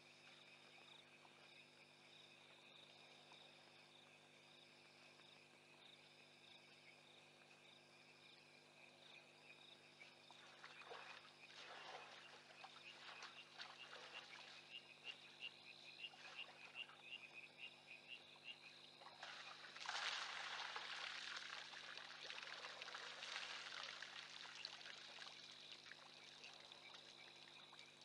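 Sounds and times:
night chorus of insects and frogs: 0.0s - 28.0s
elephant splashing in water: 19.1s - 25.0s
rush of water: 19.2s - 26.1s.

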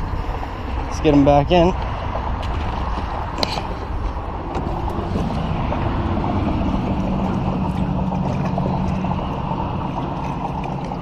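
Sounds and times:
wind rushing over microphone: 0.0s - 11.0s
low steady hum: 2.2s - 11.0s.

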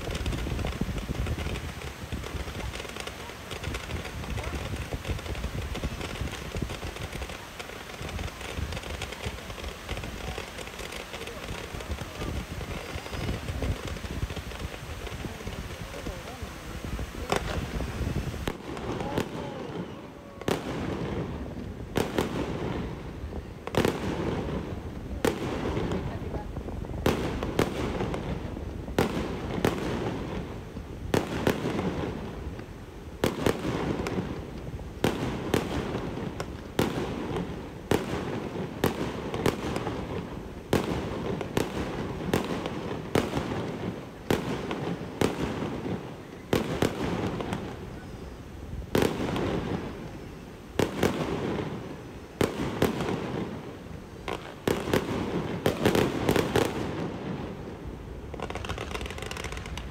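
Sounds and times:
constant rushing noise: 0.0s - 20.4s
fireworks bangs: 0.0s - 59.9s.

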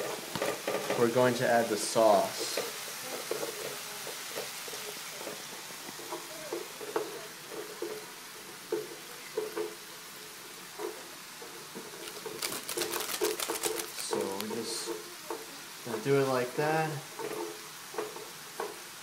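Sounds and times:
food sizzling in skillet: 0.0s - 19.0s
chopsticks tapping and scraping pan: 2.3s - 8.1s, 17.1s - 18.8s
flurry of clicks: 12.0s - 14.5s.

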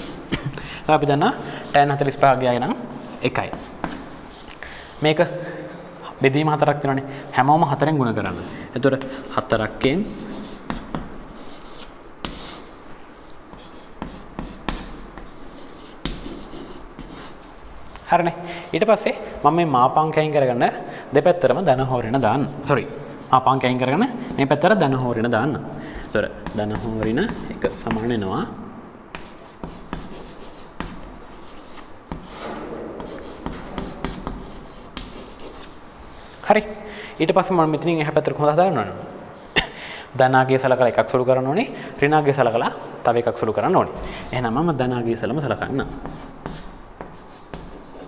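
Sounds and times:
chalk writing on chalkboard: 3.0s - 4.5s, 8.3s - 12.8s, 13.5s - 17.5s, 26.0s - 28.1s, 29.1s - 36.4s, 45.4s - 48.0s
chalk tapping on board: 3.4s - 4.1s, 10.0s - 12.7s, 13.5s - 17.4s, 26.3s - 28.1s, 29.1s - 35.7s, 45.8s - 48.0s.

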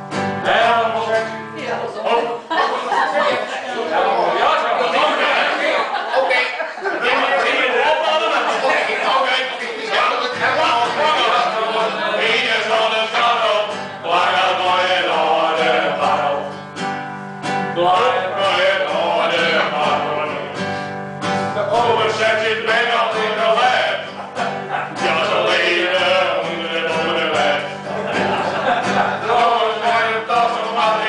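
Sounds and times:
acoustic guitar: 0.0s - 31.0s
men singing: 0.3s - 1.4s, 7.0s - 16.9s, 17.5s - 31.0s.

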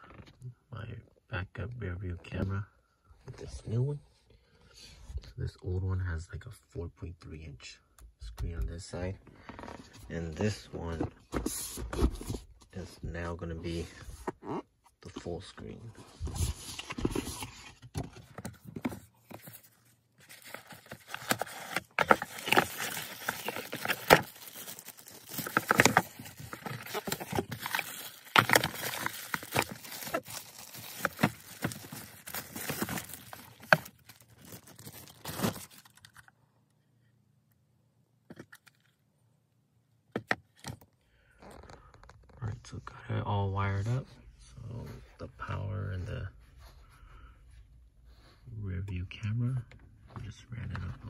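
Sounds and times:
plastic bags crinkling: 19.1s - 36.3s.

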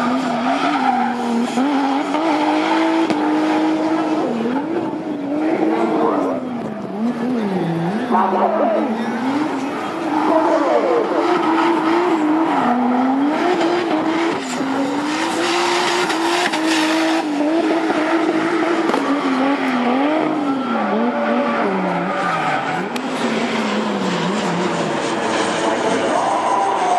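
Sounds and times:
car engine revving: 0.0s - 26.9s
tyres squealing on tarmac: 25.3s - 26.9s.

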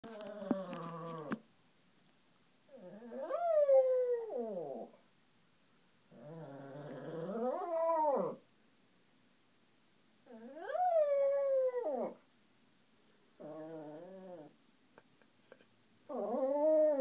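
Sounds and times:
dog howling: 2.8s - 4.9s, 6.2s - 8.4s, 10.4s - 12.2s, 16.1s - 17.0s.

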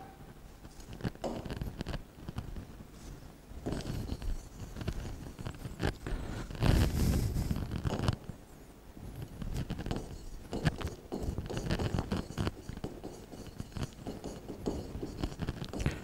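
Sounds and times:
stylus scratching on touchscreen: 9.4s - 16.0s.

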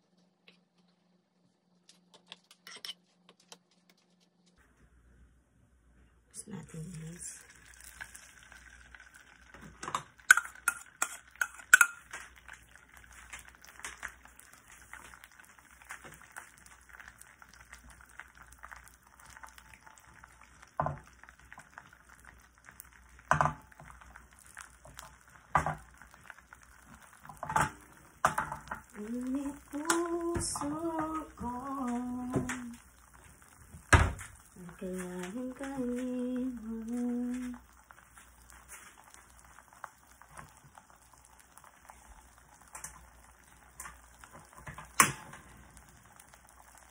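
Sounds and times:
omelette sizzling: 6.4s - 46.9s
utensil clicking against frying pan: 9.8s - 12.3s
person humming: 29.0s - 32.8s, 34.6s - 37.6s.

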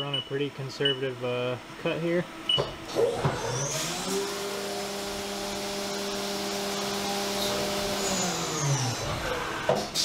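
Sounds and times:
mill spindle humming: 0.0s - 9.8s.

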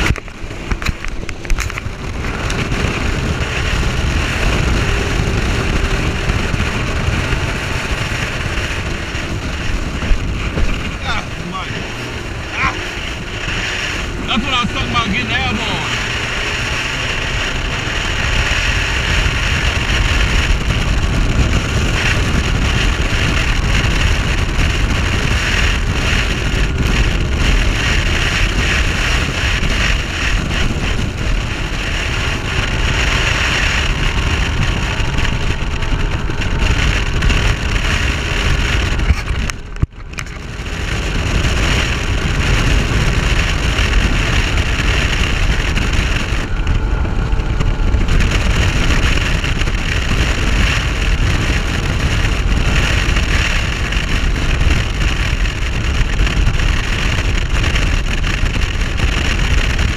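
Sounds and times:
outboard motor drone: 0.0s - 59.9s
wind buffeting microphone: 0.0s - 59.9s.

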